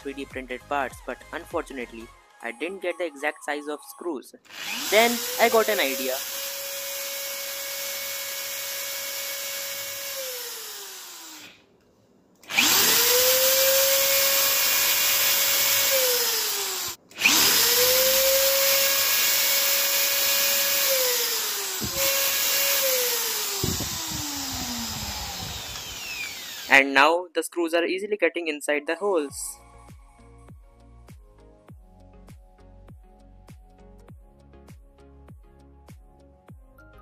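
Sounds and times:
electric drill whining: 0:04.5 - 0:11.6, 0:12.4 - 0:26.9.

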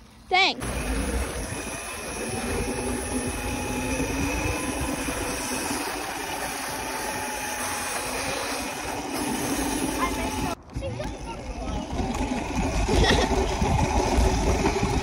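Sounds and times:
motorbike engine whine: 0:00.6 - 0:15.0
wind on the microphone: 0:10.3 - 0:15.0.

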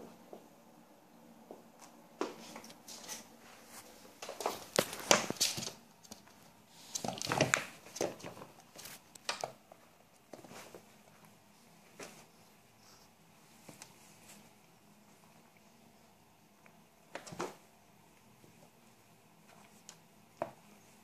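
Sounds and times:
cats scuffling on wooden floor: 0:01.4 - 0:15.4.

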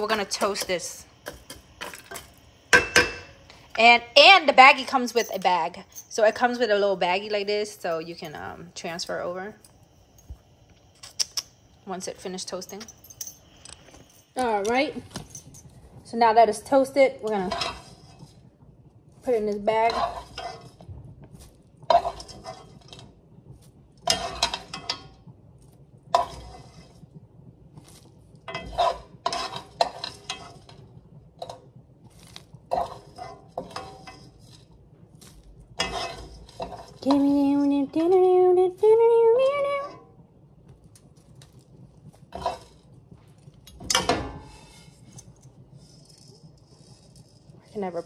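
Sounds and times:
spoon scraping against a pan: 0:00.0 - 0:03.9, 0:17.3 - 0:18.5, 0:19.3 - 0:23.2, 0:24.0 - 0:25.2, 0:26.1 - 0:27.2, 0:27.8 - 0:37.6, 0:41.4 - 0:43.0, 0:43.7 - 0:48.0.

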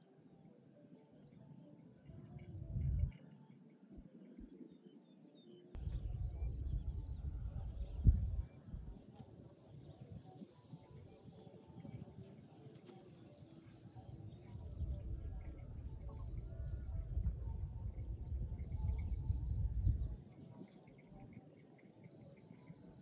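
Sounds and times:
cricket chirping: 0:06.1 - 0:12.5, 0:13.2 - 0:23.0.

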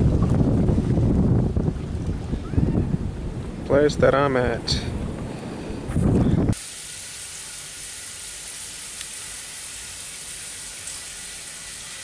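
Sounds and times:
wind buffeting microphone: 0:00.0 - 0:06.6
steady high hiss: 0:06.5 - 0:12.0.

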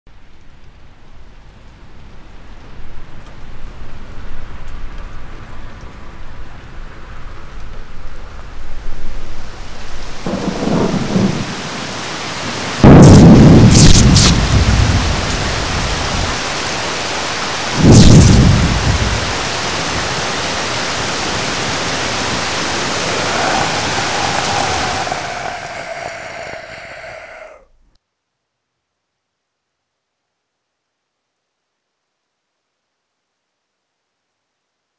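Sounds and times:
steady rain: 0:00.1 - 0:27.6
lightning crackle: 0:09.7 - 0:27.6
loud thunderclaps: 0:10.3 - 0:16.3, 0:17.8 - 0:20.2, 0:22.2 - 0:26.7.

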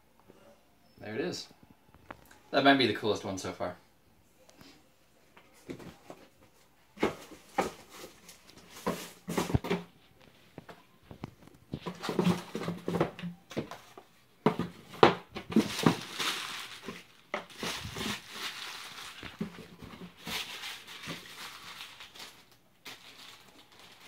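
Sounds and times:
packing material rustling: 0:14.6 - 0:24.0.

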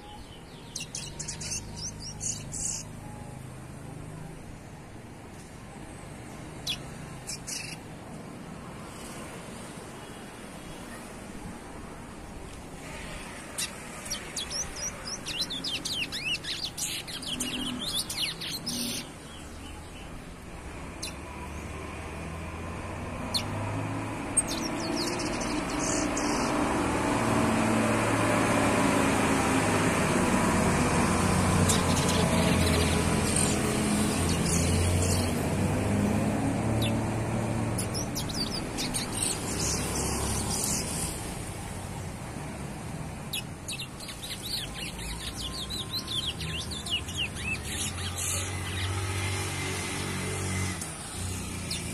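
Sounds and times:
finch twittering song: 0:00.0 - 0:03.5, 0:06.4 - 0:07.9, 0:13.2 - 0:20.1, 0:20.9 - 0:21.4, 0:23.1 - 0:23.6, 0:24.2 - 0:27.2, 0:31.5 - 0:35.6, 0:36.6 - 0:41.2, 0:43.3 - 0:49.6, 0:50.8 - 0:51.9.

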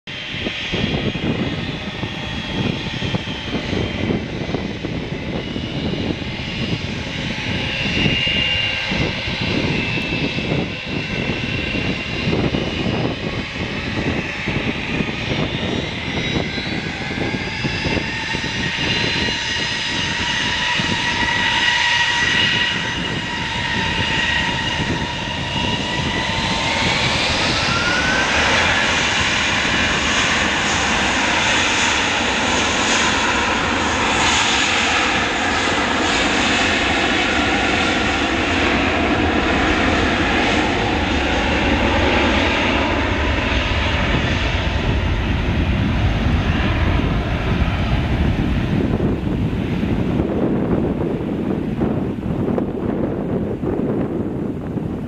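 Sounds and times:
jet engines rumbling: 0:00.1 - 0:55.0
rising engine whine: 0:00.1 - 0:55.0.

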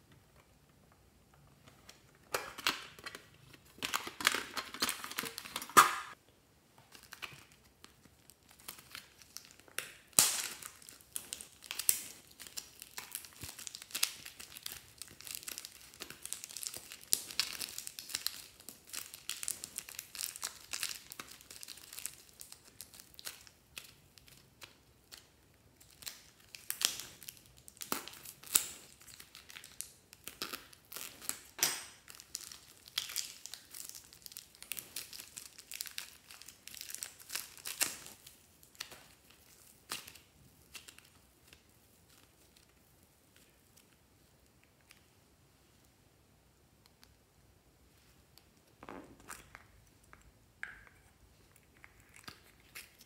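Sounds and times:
plastic packets crinkling: 0:02.4 - 0:06.2, 0:25.8 - 0:42.8.

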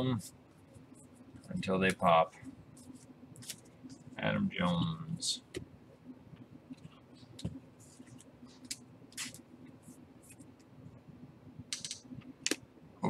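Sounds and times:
low steady hum: 0:00.0 - 0:13.0
trading cards rustling and scraping: 0:02.7 - 0:04.1, 0:06.8 - 0:09.4.

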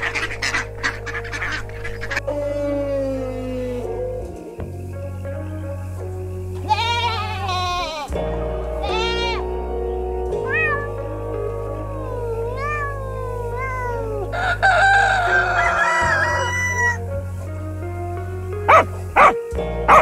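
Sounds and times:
young goats bleating: 0:00.0 - 0:04.5, 0:06.6 - 0:17.0
background music: 0:00.0 - 0:20.0
rooster crowing: 0:13.6 - 0:17.0.

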